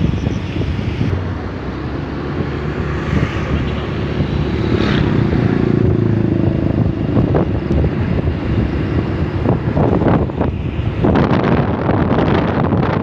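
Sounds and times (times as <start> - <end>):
wind on microphone: 0.0 - 13.0
motorcycle engine running: 0.1 - 12.2.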